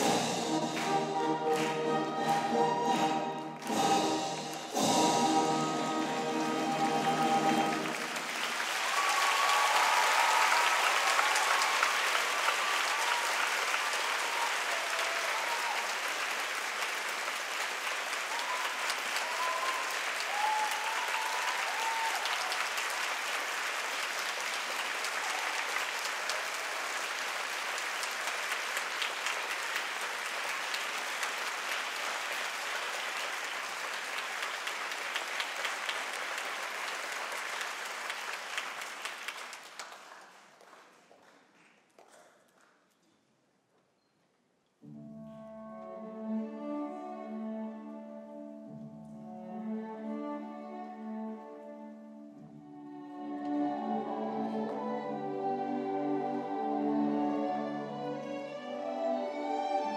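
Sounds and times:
audience applauding: 0.0s - 42.9s.

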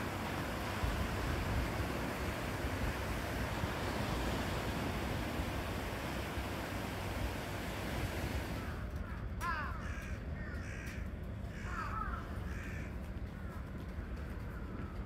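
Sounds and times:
low background rumble: 0.0s - 15.0s
bird calling: 8.5s - 15.0s.

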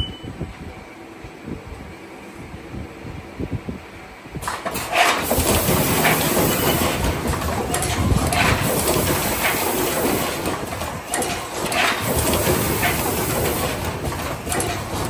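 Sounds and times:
machine mechanical clatter: 4.4s - 15.0s
pneumatic clacks: 4.4s - 15.0s.

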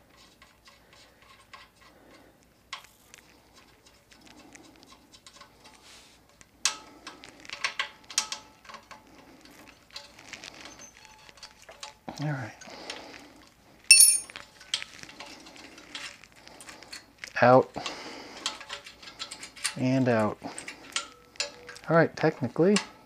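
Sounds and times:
small metal clicks and clinks: 13.9s - 17.4s.

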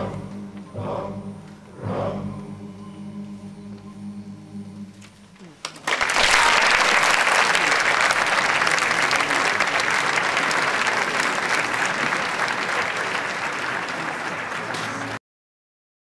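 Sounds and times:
audience applauding: 5.6s - 15.2s.

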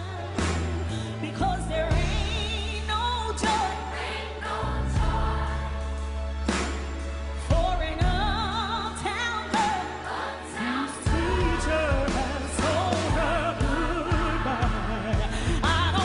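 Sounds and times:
live band playing: 0.0s - 16.0s
woman singing with vibrato: 7.5s - 16.0s.

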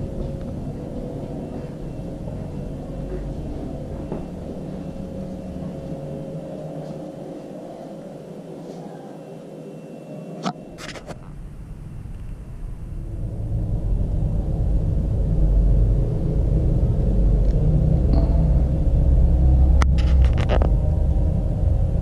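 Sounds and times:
deep rumble: 0.0s - 8.4s, 10.6s - 22.0s.

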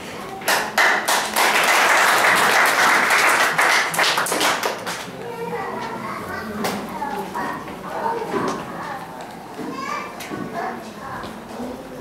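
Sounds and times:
audience applauding: 0.5s - 5.0s.

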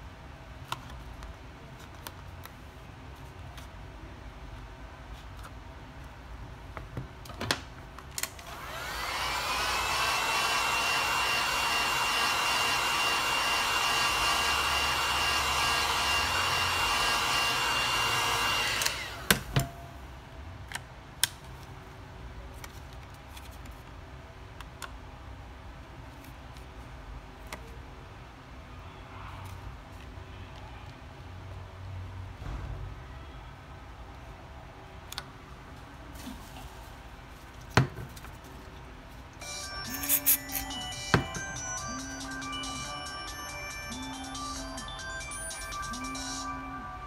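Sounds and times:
hot-air blower fan running: 8.2s - 19.9s.

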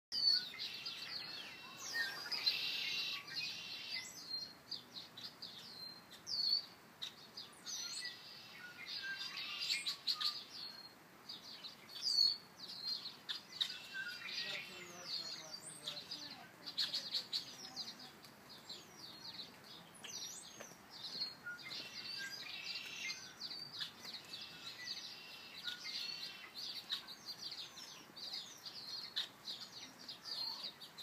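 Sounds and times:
songbirds chirping and whistling: 0.1s - 31.0s.

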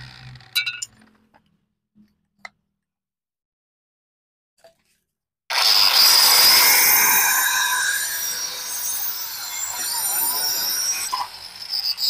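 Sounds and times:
tile cutter grinding roof tile: 5.5s - 12.0s.

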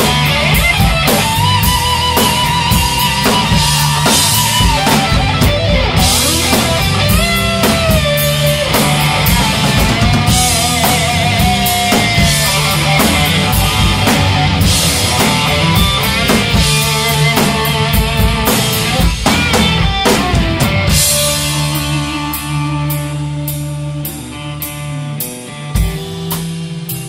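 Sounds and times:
drums and bass: 0.0s - 27.0s
electric guitar lead notes: 0.0s - 27.0s.

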